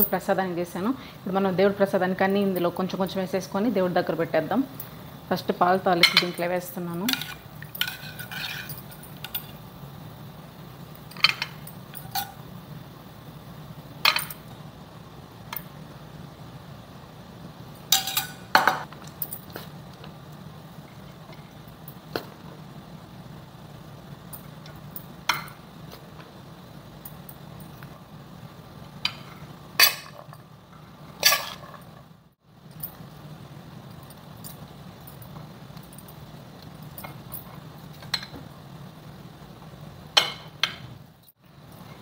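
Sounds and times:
spoon clinking on metal pans: 6.0 - 9.6, 17.9 - 18.9.

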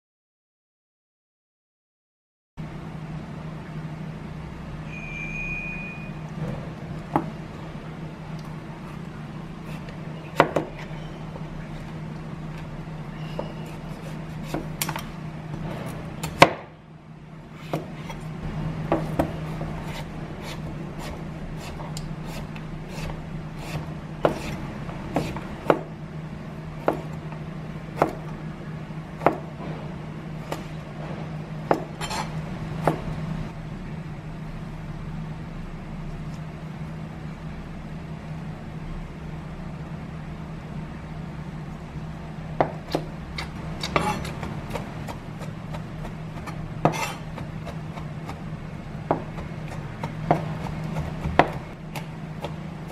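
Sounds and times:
low steady hum: 2.6 - 52.9
knife chopping squash on board: 9.7 - 10.9, 13.4 - 15.1, 15.8 - 16.7, 17.6 - 18.2, 18.8 - 25.9, 26.8 - 27.2, 27.9 - 28.4, 29.2 - 29.5, 31.6 - 33.2, 42.6 - 52.9.

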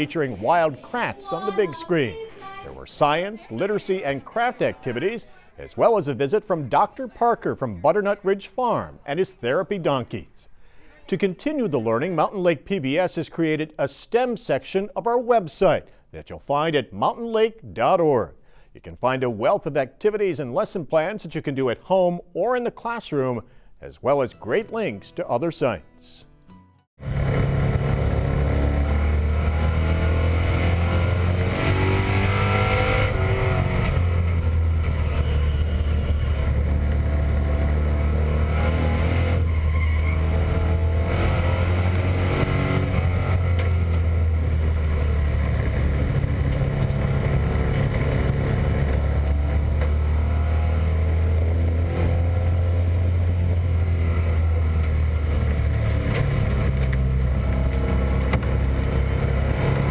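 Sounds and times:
race car engine accelerating: 27.0 - 59.9.

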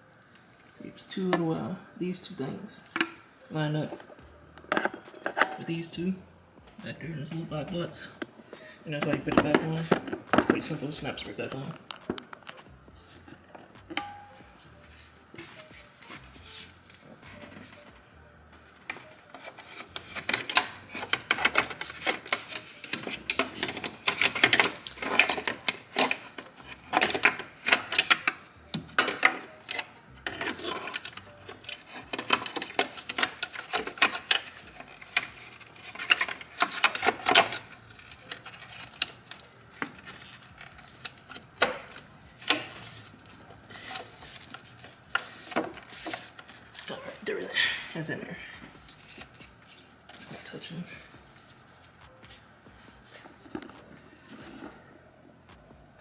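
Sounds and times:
gloved hands rubbing and scraping: 14.4 - 17.8, 42.1 - 47.2.

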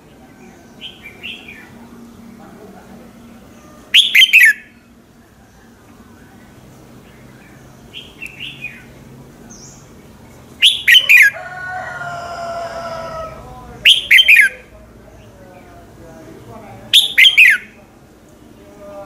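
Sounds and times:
bird whistled song phrases: 3.9 - 4.8, 10.6 - 11.4, 13.9 - 14.6, 16.9 - 17.8.

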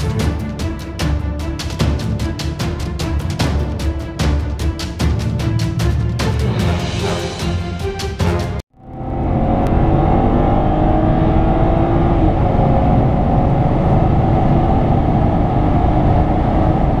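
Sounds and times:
car engine accelerating: 8.7 - 17.0.

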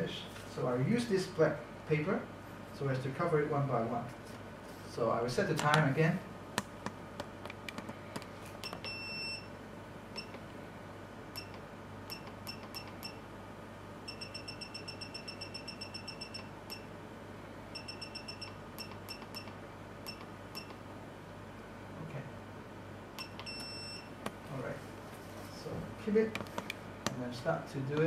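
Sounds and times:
steady low hum: 0.0 - 28.0
control panel key beeps: 8.6 - 9.5, 11.4 - 13.2, 17.8 - 20.8, 23.2 - 24.1.

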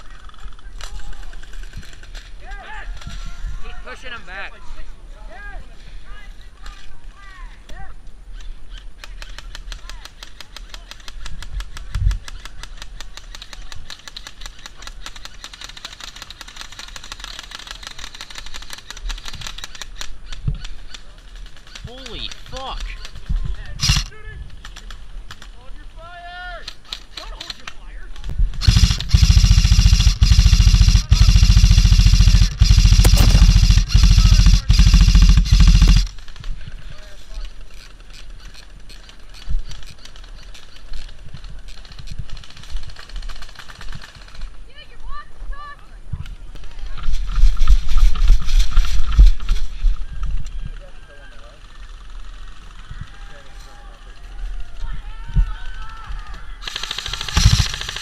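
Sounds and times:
airsoft guns firing: 23.8 - 24.1, 28.6 - 36.4, 56.6 - 58.0.

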